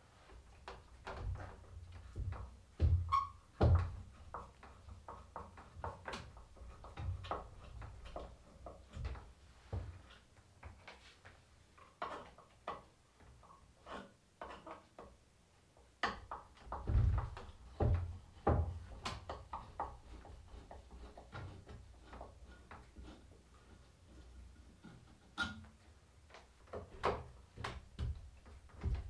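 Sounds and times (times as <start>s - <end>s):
heavier wooden knocks: 0.6s - 10.1s, 16.0s - 22.8s, 26.6s - 29.0s
metal tool scraping wood: 13.7s - 14.9s, 18.8s - 25.8s.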